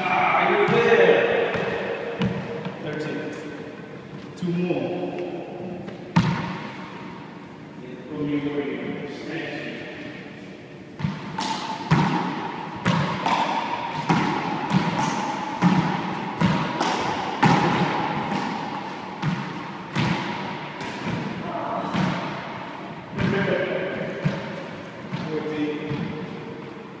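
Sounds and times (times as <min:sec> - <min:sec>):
handball smacks ringing off walls: 0:11.0 - 0:22.5.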